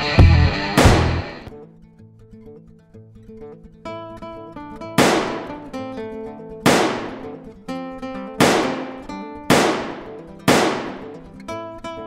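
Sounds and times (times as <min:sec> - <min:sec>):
guitar background music: 0:00.0 - 0:12.0
loud sharp crashing hits: 0:00.8 - 0:01.4, 0:05.0 - 0:05.7, 0:06.7 - 0:07.4, 0:08.4 - 0:11.2.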